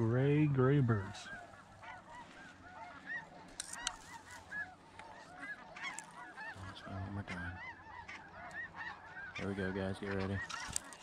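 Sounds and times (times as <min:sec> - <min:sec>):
geese honking: 0:00.0 - 0:11.0.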